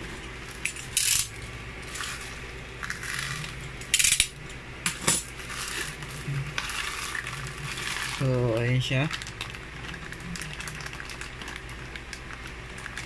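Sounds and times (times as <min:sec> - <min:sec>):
plastic bag crinkling: 0:05.3 - 0:13.0.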